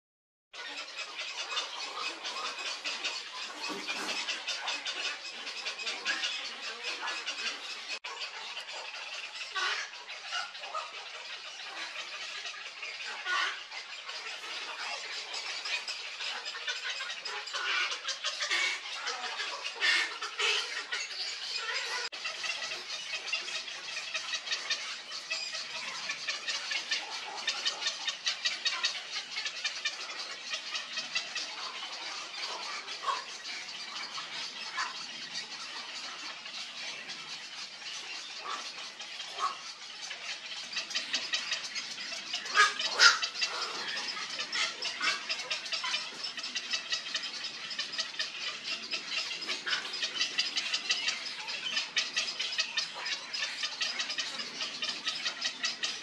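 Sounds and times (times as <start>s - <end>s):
herons chattering clicks: 0.6s - 56.0s.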